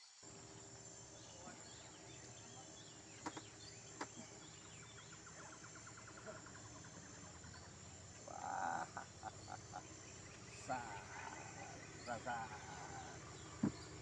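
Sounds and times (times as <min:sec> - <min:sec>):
high insect whine: 0:00.0 - 0:14.0
small birds chirping: 0:00.0 - 0:14.0
frog pulsing call: 0:01.0 - 0:14.0
sharp clicks: 0:03.2 - 0:04.2.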